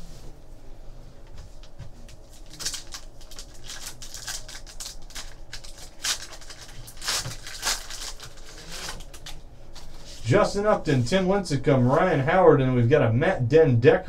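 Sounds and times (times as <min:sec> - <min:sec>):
foil wrapper crinkling and tearing: 0:02.1 - 0:09.4.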